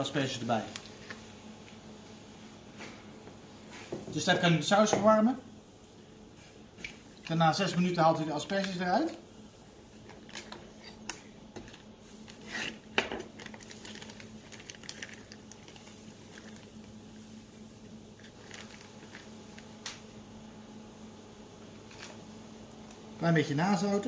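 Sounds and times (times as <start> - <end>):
faint steady hum: 0.0 - 24.0
plastic bag rustling and squishing: 11.6 - 17.3, 18.1 - 19.8.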